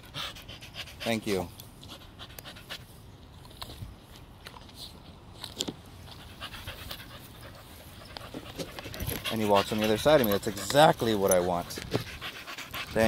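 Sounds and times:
dog panting: 0.0 - 2.9, 6.1 - 13.0.

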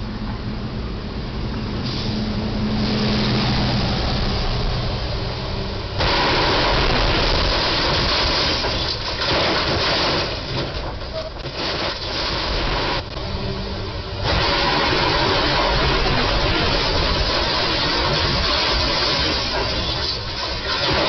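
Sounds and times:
vehicle engine humming: 0.0 - 9.2, 10.4 - 21.0
metal scraping and tearing: 6.0 - 13.1, 14.2 - 21.0
falling debris ticking: 6.0 - 13.2, 14.3 - 21.0.

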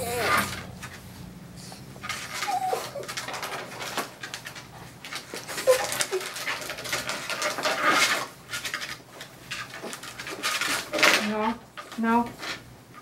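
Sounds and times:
dog whining: 0.0 - 0.7, 1.6 - 3.8, 5.5 - 6.5.

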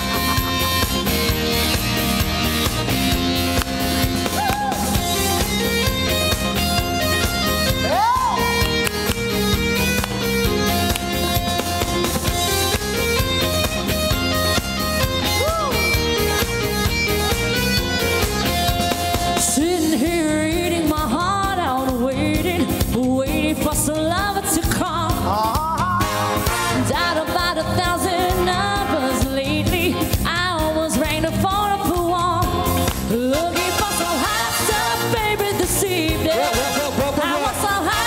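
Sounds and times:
instrumental accompaniment: 0.0 - 20.2
woman singing into a microphone: 19.4 - 25.9, 26.8 - 38.0.

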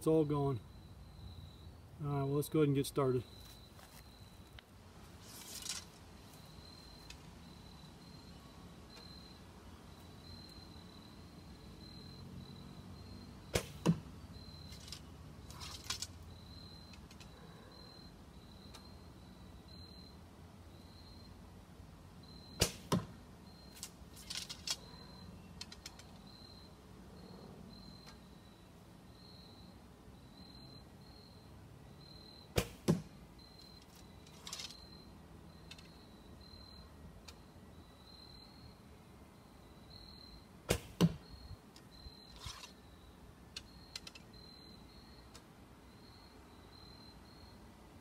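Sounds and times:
crickets trilling: 0.0 - 21.4, 22.1 - 47.7
arrows clicking and rattling: 5.2 - 6.0, 13.5 - 14.0, 14.7 - 16.2, 23.7 - 24.9, 33.8 - 34.8, 42.3 - 42.8
rustle of arrow from quiver: 5.2 - 6.0, 13.5 - 14.0, 40.7 - 41.2, 42.3 - 42.8
bow string snap: 13.5 - 14.0
arrow thumping target: 13.5 - 14.1, 22.6 - 23.2, 32.5 - 33.2, 40.7 - 41.3.

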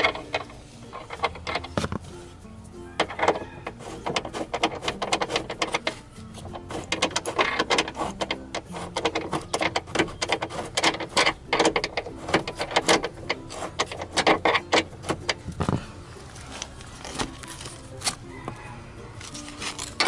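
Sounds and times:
ratchet wrench clicking: 0.0 - 2.0, 2.9 - 15.7.

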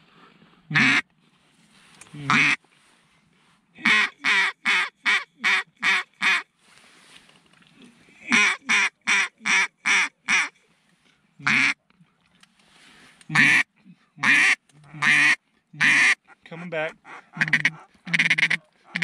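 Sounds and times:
duck call quacks: 0.7 - 1.0, 2.3 - 2.6, 3.8 - 6.4, 8.3 - 10.5, 11.4 - 11.8, 13.3 - 19.0.

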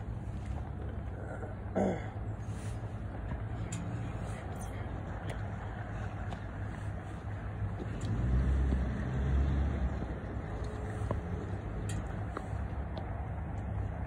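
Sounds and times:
background traffic: 0.0 - 14.0
motor vehicle rumbling past: 3.4 - 14.0.

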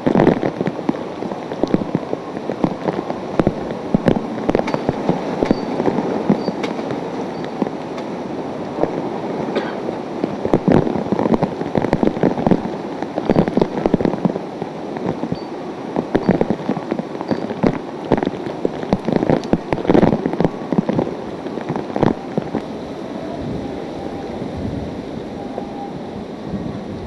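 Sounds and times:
crackles on microphone: 0.0 - 8.1, 10.2 - 22.7
driving rain: 0.0 - 27.0
hurricane-force wind: 0.0 - 27.0.

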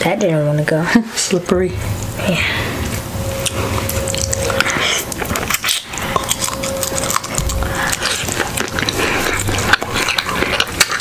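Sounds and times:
chewing: 2.8 - 11.0
wet smacking and sucking: 2.8 - 11.0.

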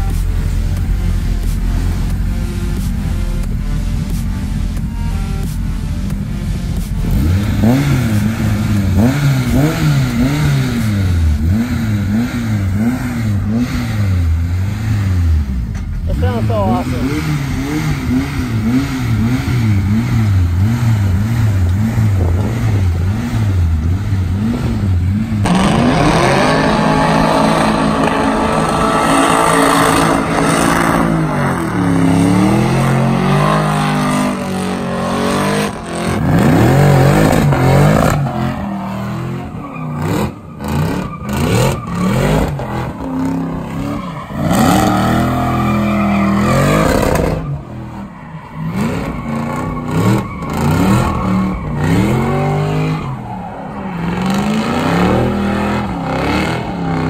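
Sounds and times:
car engines revving hard: 0.0 - 57.0
tyre squeal: 35.6 - 55.2.

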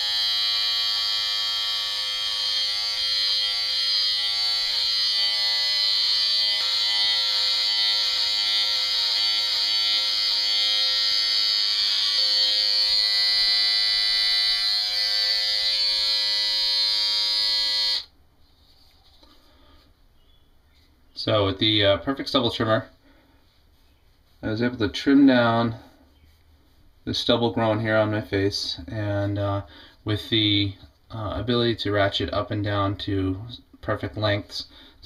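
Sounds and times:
stubble trimmer buzzing: 0.0 - 18.1.

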